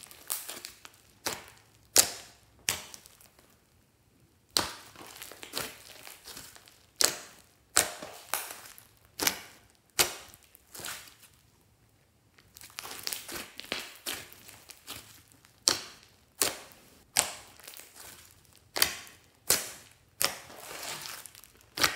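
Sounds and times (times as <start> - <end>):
hands squishing slime: 0.0 - 3.6, 4.4 - 11.5, 12.4 - 21.9
slime popping and crackling: 0.0 - 3.6, 4.4 - 11.4, 12.4 - 21.9.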